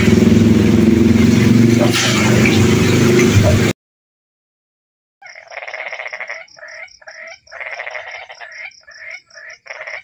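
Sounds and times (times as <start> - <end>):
frogs croaking: 5.2 - 10.0.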